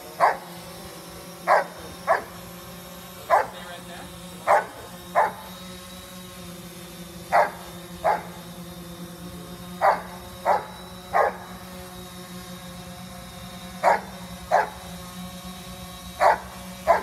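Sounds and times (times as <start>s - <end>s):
drone propellers humming: 0.0s - 17.0s
dog barking: 0.2s - 0.4s, 1.5s - 2.3s, 3.3s - 3.6s, 4.5s - 5.4s, 7.3s - 8.3s, 9.8s - 11.4s, 13.8s - 14.8s, 16.2s - 17.0s.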